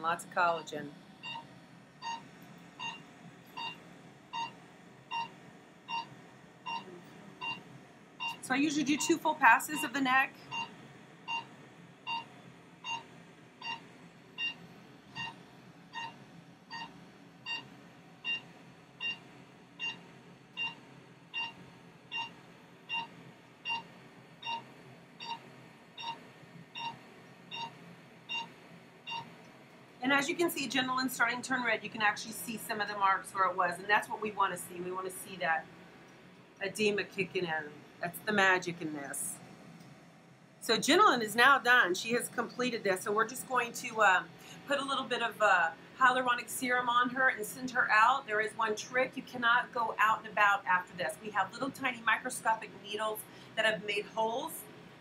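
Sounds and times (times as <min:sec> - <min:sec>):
machine beeping: 0:00.6 - 0:07.6, 0:08.2 - 0:29.3.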